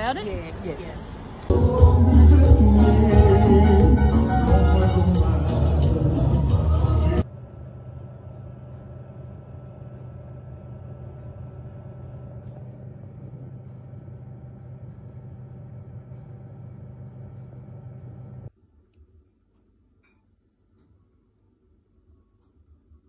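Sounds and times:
oven fan humming: 7.2 - 18.5.

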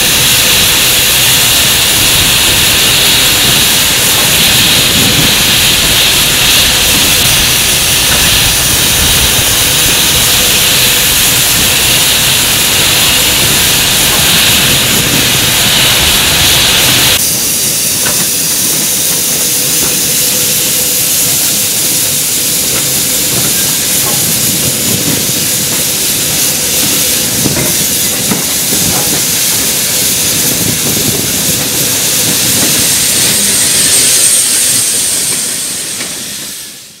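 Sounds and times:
steam hissing: 0.0 - 37.0
steam locomotive running: 0.0 - 37.0.

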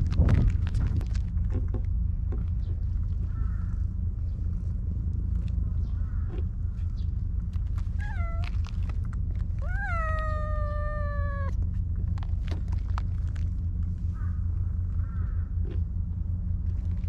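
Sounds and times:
steady low rumble: 0.0 - 17.0
cat meowing: 7.9 - 8.8, 9.6 - 11.6.

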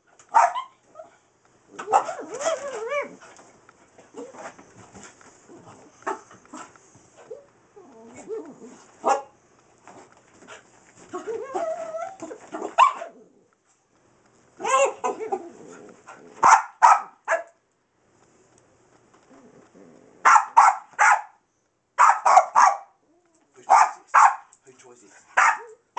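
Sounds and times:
dog barking: 0.3 - 0.7, 1.8 - 3.1, 9.0 - 9.4, 12.6 - 13.1, 14.6 - 15.2, 16.4 - 17.6, 20.2 - 21.4, 22.0 - 23.0, 23.6 - 24.5, 25.4 - 25.8
dog yowling: 1.8 - 3.2, 11.1 - 13.2, 14.6 - 15.5.

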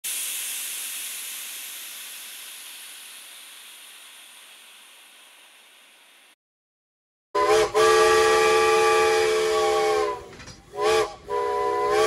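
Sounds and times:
steam hissing: 0.0 - 6.4.

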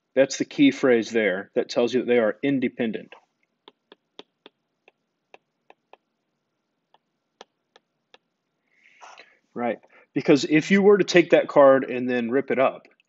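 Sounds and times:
stylus tapping on glass screen: 3.7 - 6.1.

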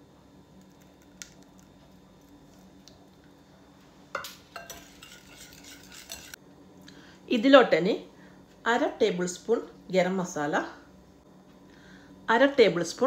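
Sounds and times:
whisk clinking against glass bowl: 4.6 - 6.4.

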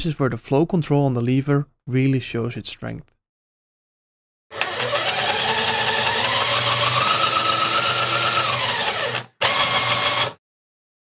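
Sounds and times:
pump motor whine: 4.6 - 10.4.

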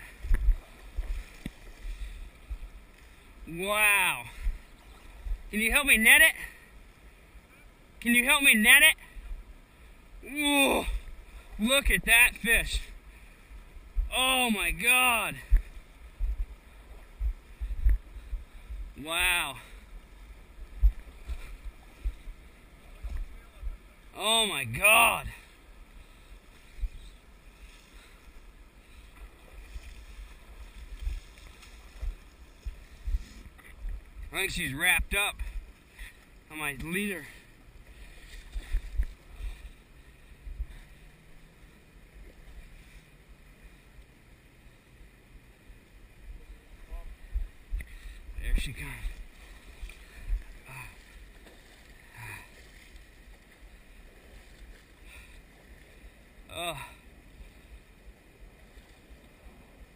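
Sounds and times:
wind rumbling on microphone: 0.0 - 5.6, 10.8 - 19.1, 19.8 - 24.1, 25.7 - 36.2, 37.5 - 43.5, 45.2 - 56.5
river water hiss: 0.0 - 59.9.

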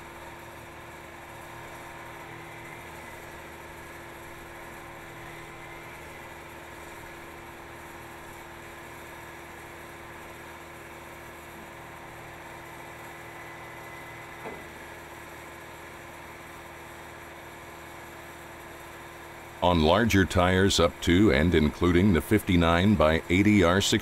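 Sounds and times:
power unit engine hum: 0.0 - 24.0
heavy machinery running: 19.6 - 24.0.

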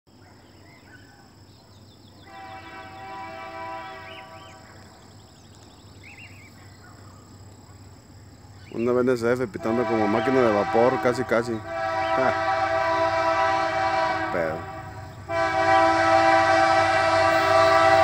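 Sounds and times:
diesel locomotive horn blast: 2.2 - 5.0, 9.4 - 18.0.

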